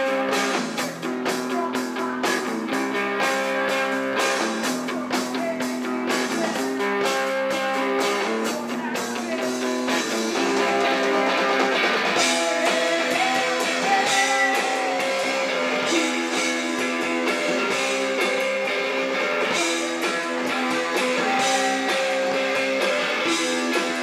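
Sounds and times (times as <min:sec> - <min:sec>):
live rock band playing: 0:00.0 - 0:24.0.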